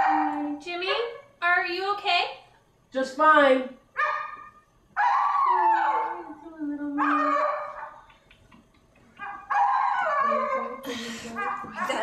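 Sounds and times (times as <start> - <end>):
puppy howling and whining: 5.0 - 8.0, 9.2 - 12.0.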